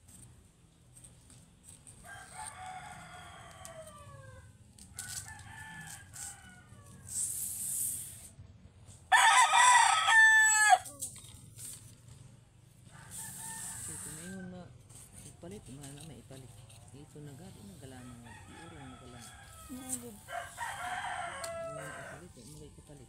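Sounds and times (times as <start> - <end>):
roosters crowing: 1.9 - 7.2, 9.1 - 11.0, 12.8 - 14.7, 17.9 - 22.6.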